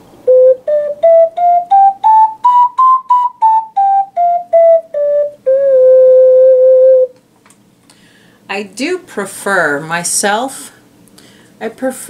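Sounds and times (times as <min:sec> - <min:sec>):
ocarina playing a scale: 0:00.2 - 0:07.2.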